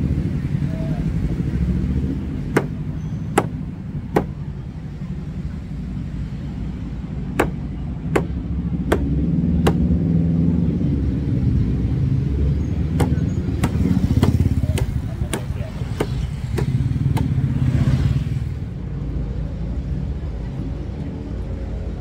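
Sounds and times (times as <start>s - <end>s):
road traffic rumble: 0.0s - 22.0s
knife chopping coconut: 2.5s - 2.8s, 3.4s - 4.4s, 7.4s - 7.6s, 8.2s - 9.9s, 12.9s - 17.4s.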